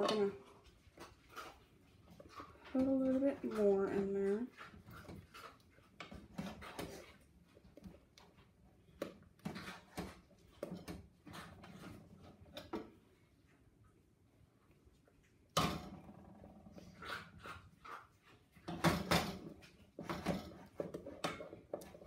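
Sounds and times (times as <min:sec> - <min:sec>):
spatula scraping and tapping pot: 0:00.0 - 0:13.0, 0:16.8 - 0:22.0
spatula stirring sticky marshmallow: 0:00.0 - 0:13.7.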